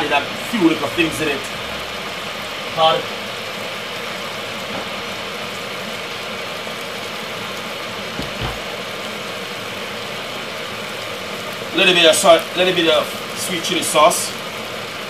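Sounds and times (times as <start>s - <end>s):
soft knock: 8.2s - 8.6s.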